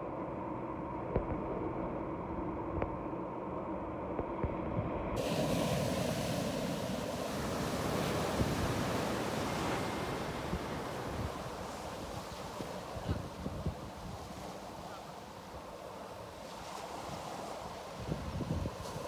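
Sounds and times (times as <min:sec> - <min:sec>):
wind on microphone: 0:04.2 - 0:19.0
ocean surf on rocks: 0:05.2 - 0:19.0.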